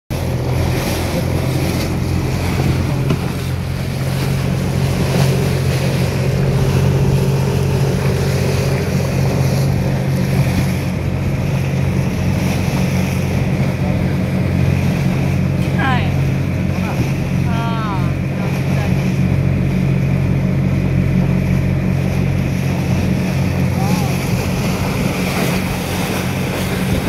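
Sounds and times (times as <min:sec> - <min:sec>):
motorboat engine drone: 0:00.1 - 0:27.0
water rushing against hull: 0:00.1 - 0:27.0
wind buffeting microphone: 0:00.2 - 0:27.0.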